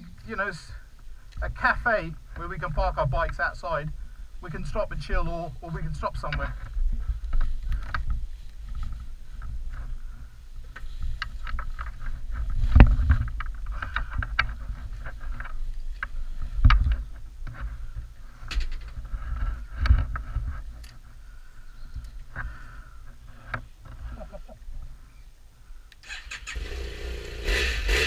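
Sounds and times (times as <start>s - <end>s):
rustling of gear against microphone: 0.0s - 25.3s.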